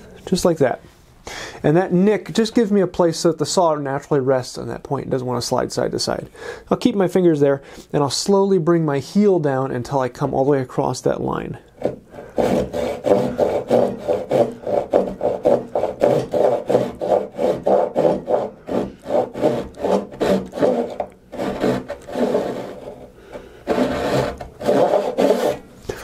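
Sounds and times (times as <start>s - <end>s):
hand saw cutting wood: 11.8s - 26.0s.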